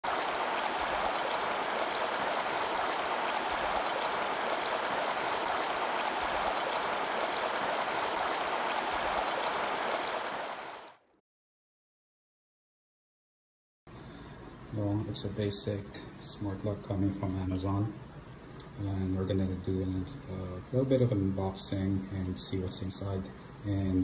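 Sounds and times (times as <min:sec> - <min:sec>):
bubbling water rushing: 0:00.0 - 0:10.9.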